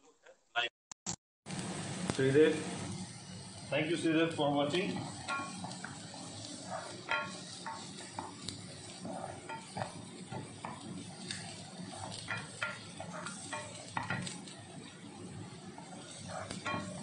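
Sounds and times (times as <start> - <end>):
onion and garlic sizzling: 1.5 - 17.0
spatula scraping a pan: 4.6 - 17.0.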